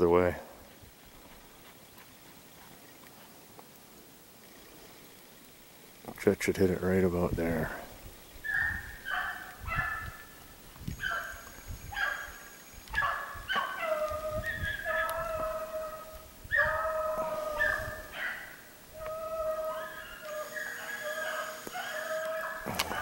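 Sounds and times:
hounds baying: 8.4s - 10.4s, 11.0s - 23.0s.

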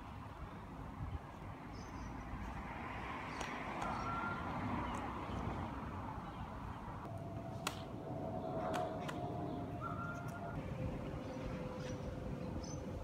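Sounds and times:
car passing: 2.2s - 12.3s
birds calling: 8.3s - 13.0s.

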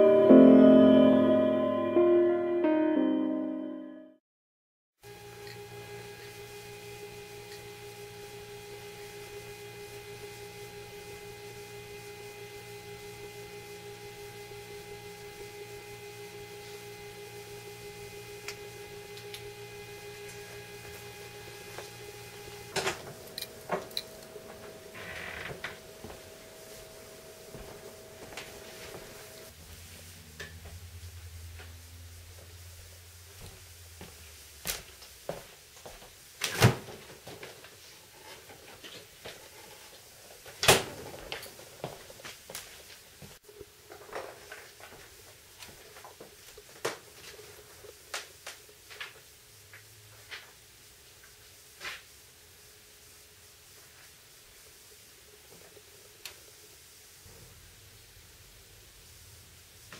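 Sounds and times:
electronic hum of held tones: 5.1s - 29.5s.

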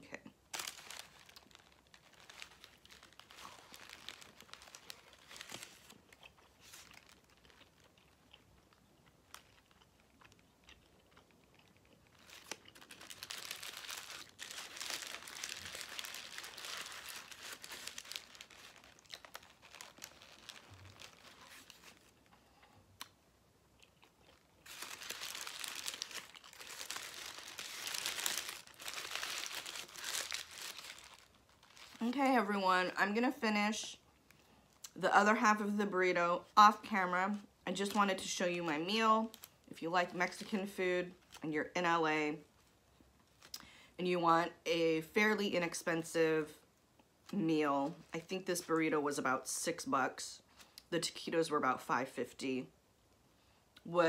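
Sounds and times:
paper wrapper crinkling: 0.5s - 22.4s, 24.3s - 32.5s
chewing: 6.0s - 12.9s.

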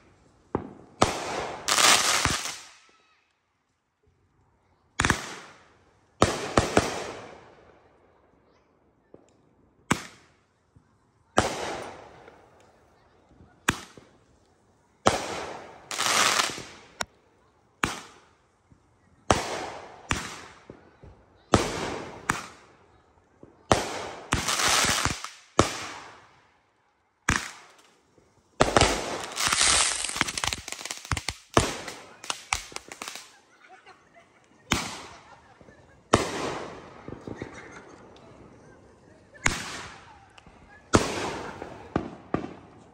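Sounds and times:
crackling hiss of fireworks: 0.0s - 42.9s
fireworks bangs: 0.5s - 2.8s, 5.0s - 7.5s, 11.4s - 12.7s, 13.3s - 14.3s, 15.0s - 17.1s, 17.8s - 26.4s, 27.2s - 33.4s, 34.0s - 42.9s.

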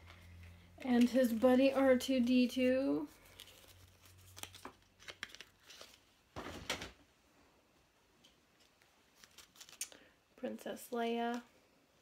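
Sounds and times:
rustling: 3.0s - 6.1s, 8.2s - 10.0s.

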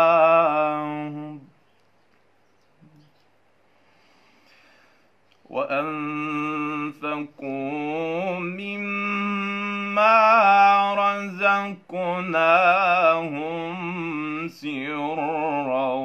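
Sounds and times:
man reciting melodically: 0.0s - 1.6s, 5.4s - 16.0s.

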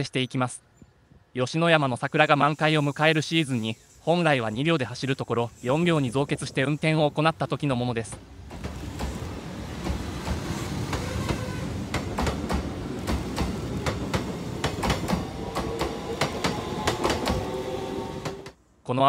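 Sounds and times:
train rumbling past: 2.0s - 18.6s
wheels clicking over rail joints: 8.0s - 17.5s.

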